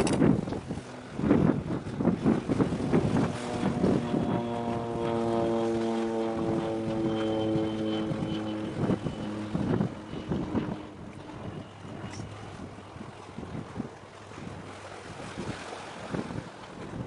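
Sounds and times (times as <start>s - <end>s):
wind buffeting microphone: 0.0s - 17.0s
ship's horn blast: 2.7s - 13.3s.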